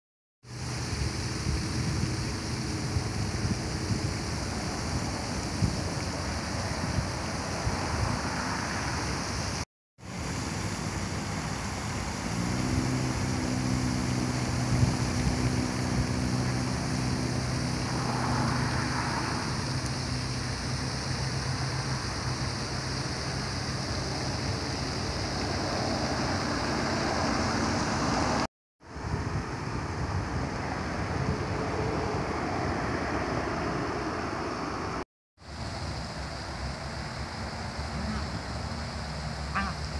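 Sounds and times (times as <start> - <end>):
fountains splashing on water: 0.5 - 30.9, 35.4 - 39.9
low engine-like hum: 10.1 - 39.9.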